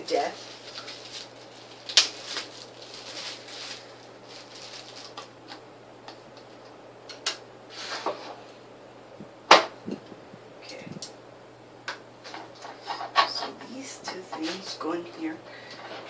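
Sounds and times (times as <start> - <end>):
parts rustling: 0.0 - 5.6.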